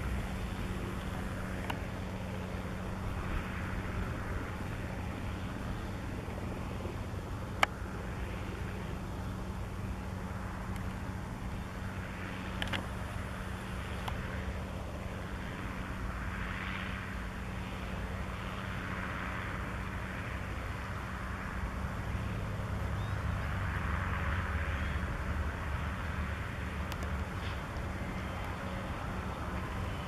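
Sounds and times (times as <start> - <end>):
tractor engine running: 0.0 - 30.0
faint clicks: 12.5 - 12.9, 26.8 - 28.6.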